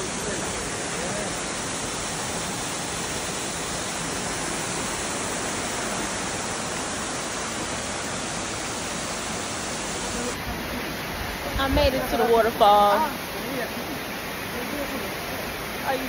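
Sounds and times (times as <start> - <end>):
waterfall rushing over rocks: 0.0 - 16.0.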